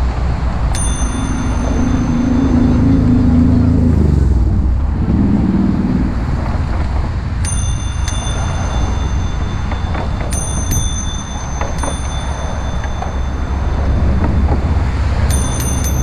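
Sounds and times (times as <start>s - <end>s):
low wind rumble: 0.0s - 16.0s
bicycle bell ringing: 0.6s - 3.6s, 7.4s - 16.0s.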